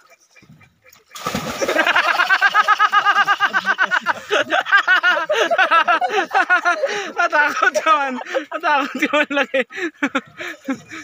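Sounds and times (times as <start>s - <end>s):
men laughing loudly: 0.0s - 11.0s.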